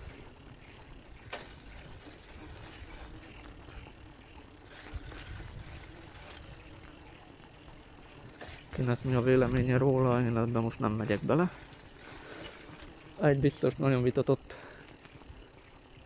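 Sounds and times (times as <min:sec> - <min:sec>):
wind rumble on microphone: 0:04.8 - 0:06.4.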